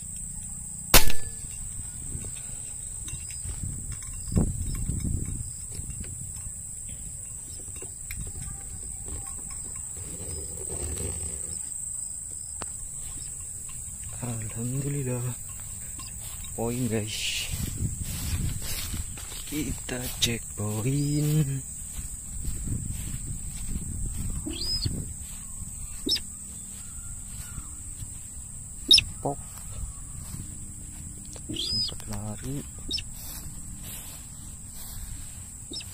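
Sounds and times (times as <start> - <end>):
high insect buzz: 0.0 - 35.9
sharp click: 1.0 - 1.4
low wind rumble: 1.3 - 35.9
cow mooing: 9.9 - 11.7
footsteps swishing through grass: 15.6 - 35.9.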